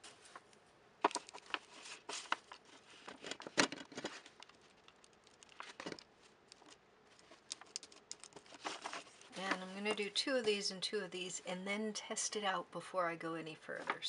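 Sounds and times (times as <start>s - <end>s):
foil wrappers crinkling: 1.0s - 9.9s.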